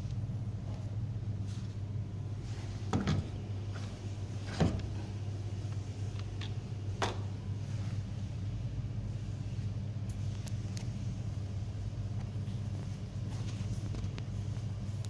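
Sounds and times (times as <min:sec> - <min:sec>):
steady low hum: 0:00.0 - 0:15.0.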